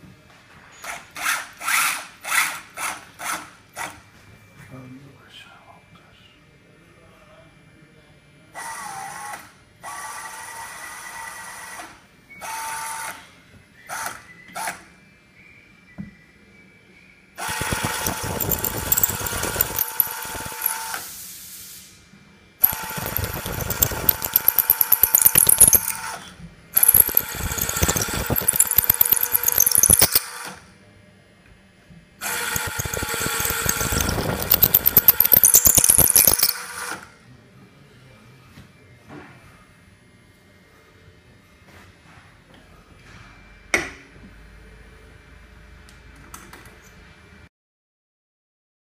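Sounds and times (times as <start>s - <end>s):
drill cutting into metal: 17.4s - 21.0s, 22.6s - 26.0s, 32.2s - 37.0s
tapping arm motor spinning up: 17.4s - 21.0s, 22.6s - 26.0s, 26.8s - 30.4s, 32.2s - 36.9s.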